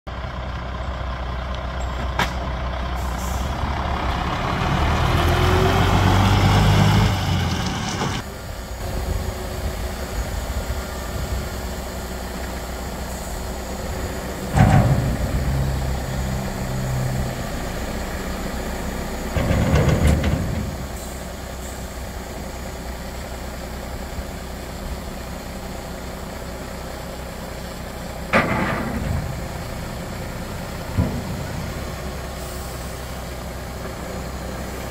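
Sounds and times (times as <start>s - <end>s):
diesel truck engine running: 0.1s - 34.9s
air brake releases: 3.0s - 3.6s, 20.9s - 21.9s, 32.3s - 33.2s.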